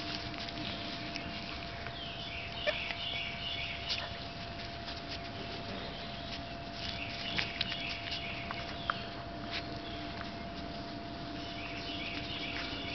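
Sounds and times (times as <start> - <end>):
puppy rustling through grass: 0.0 - 12.9
faint bird chirps: 1.9 - 4.1.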